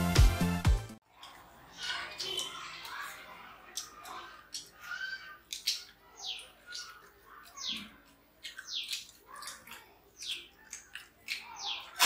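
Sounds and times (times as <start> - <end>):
people eating by hand: 1.0 - 12.0
bird chirping: 3.7 - 12.0.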